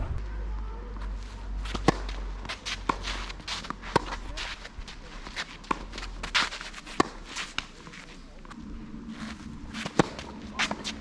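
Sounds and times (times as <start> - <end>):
footsteps scuffing on court: 1.0 - 8.2
tennis ball struck by racket: 1.7 - 4.5, 5.6 - 7.7, 9.8 - 11.0.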